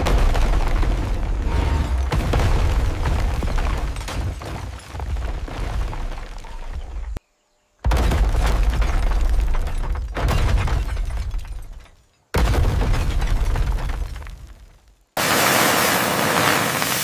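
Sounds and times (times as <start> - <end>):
heavy rumbling crashes: 0.0 - 4.4.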